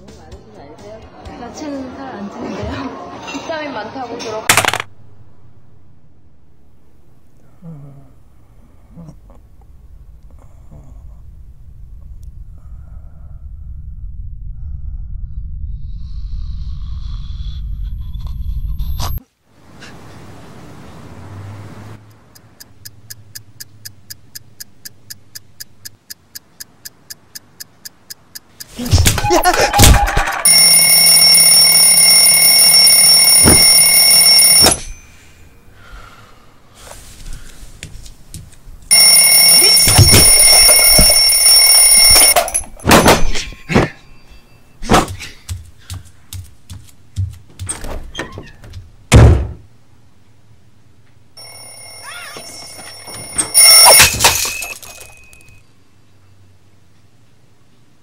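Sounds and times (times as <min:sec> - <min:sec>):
clock ticking: 0:22.0 - 0:29.2
alarm clock ringing: 0:30.4 - 0:35.2, 0:38.9 - 0:42.9, 0:51.4 - 0:55.6
knocks and thumps: 0:44.8 - 0:49.7.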